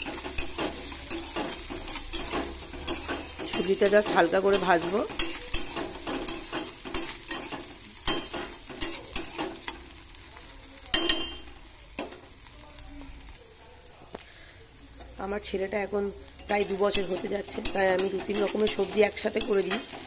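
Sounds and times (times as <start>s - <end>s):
metal spatula scraping pan: 0.0s - 9.9s, 16.3s - 20.0s
vegetables sizzling in oil: 0.0s - 20.0s.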